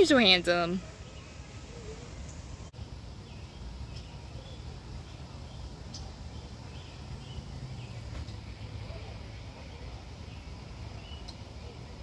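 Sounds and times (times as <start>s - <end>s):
faint bird chirps: 3.2s - 11.8s.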